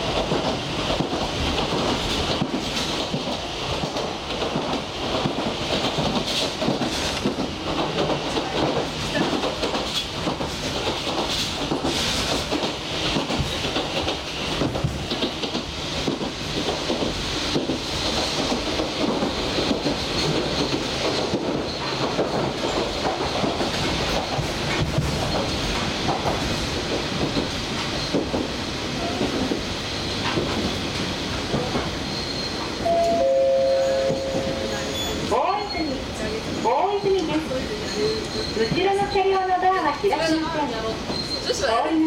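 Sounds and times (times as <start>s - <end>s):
train wheels rumbling on rails: 0.0s - 42.0s
two-tone train horn: 32.8s - 34.9s.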